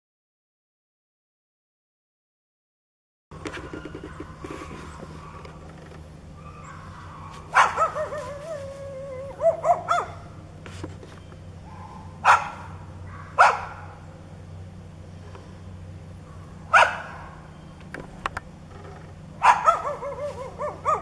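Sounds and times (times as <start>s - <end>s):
dog barking: 3.5s - 5.6s, 6.4s - 8.5s, 9.4s - 10.4s, 11.6s - 14.0s, 16.2s - 17.5s, 19.4s - 21.0s.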